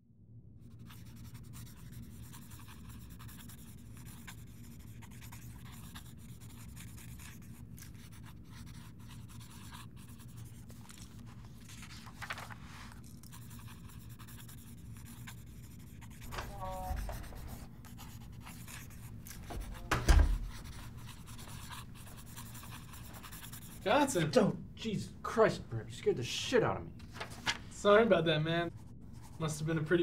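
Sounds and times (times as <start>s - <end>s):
low room hum: 0.0s - 30.0s
pen scratching on paper: 0.7s - 11.9s, 12.9s - 24.2s.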